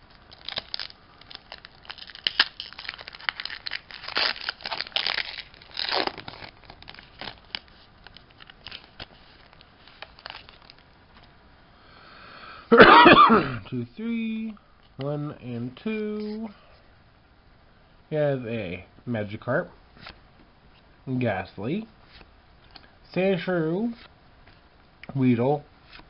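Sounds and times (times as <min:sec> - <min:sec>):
foil wrapper crinkling and tearing: 0:00.2 - 0:10.9.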